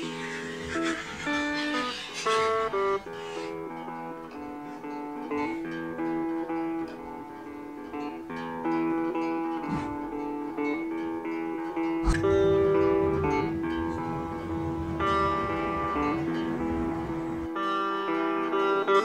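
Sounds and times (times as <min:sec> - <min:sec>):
plucked-string melody: 0:00.0 - 0:19.0
sharp thump: 0:12.0 - 0:13.4.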